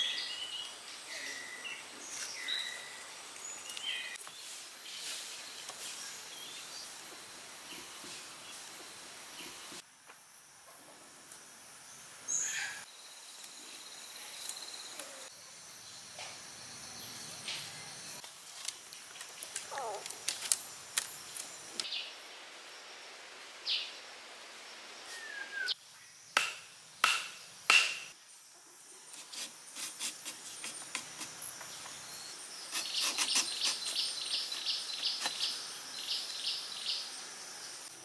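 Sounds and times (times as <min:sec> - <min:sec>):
insects chirping: 0:00.0 - 0:38.0
wooden stake knocks: 0:26.4 - 0:28.1.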